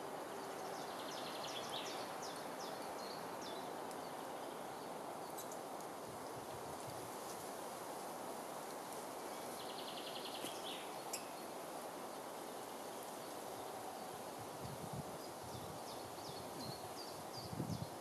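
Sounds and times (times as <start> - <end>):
outdoor background hush: 0.0 - 18.0
soft rustle: 2.0 - 18.0
faint bird chirps: 9.3 - 11.6.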